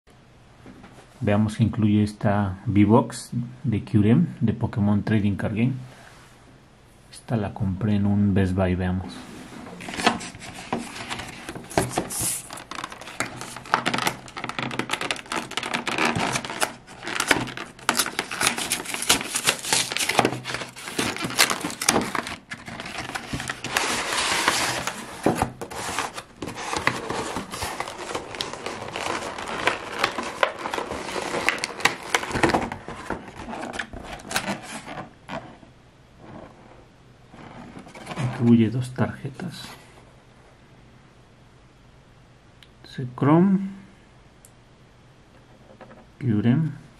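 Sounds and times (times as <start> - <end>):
packaging rustling and crinkling: 9.5 - 36.7, 37.3 - 38.5.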